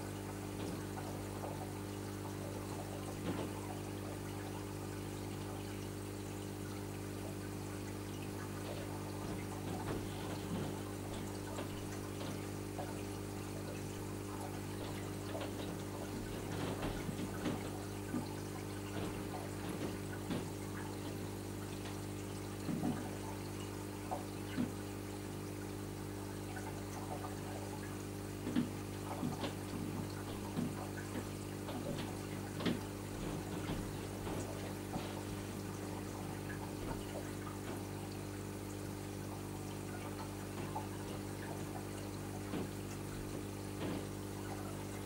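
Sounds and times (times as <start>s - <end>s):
steady pump hum: 0.0s - 45.0s
water gurgles: 0.0s - 45.0s
water trickling and pouring: 0.0s - 45.0s.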